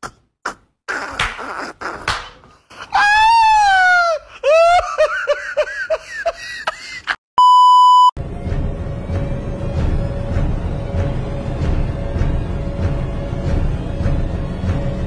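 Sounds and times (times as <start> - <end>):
test-card beep: 7.4 - 8.1
eerie background music: 8.2 - 15.0.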